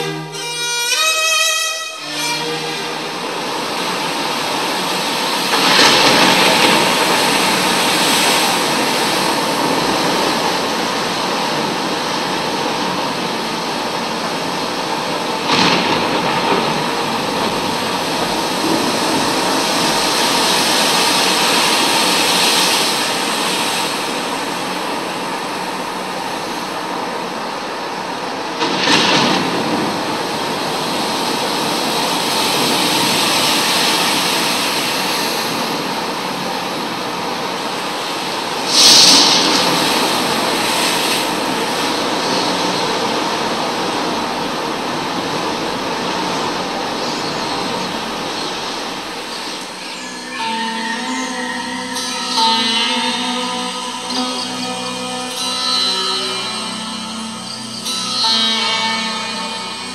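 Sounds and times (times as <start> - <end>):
loud wave crashes: 2.0 - 59.9
wind and waves rushing: 2.8 - 50.3.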